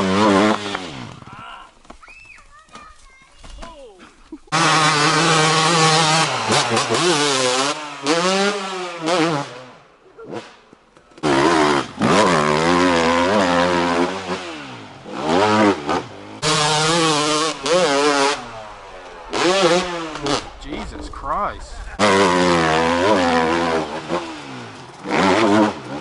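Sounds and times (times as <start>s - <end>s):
dirt bike engine revving: 0.0s - 1.4s, 4.4s - 26.0s.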